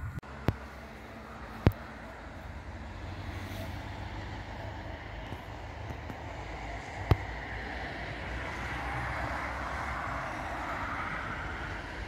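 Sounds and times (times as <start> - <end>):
wind buffeting microphone: 0.0 - 0.3
steady low rumble: 0.0 - 3.4.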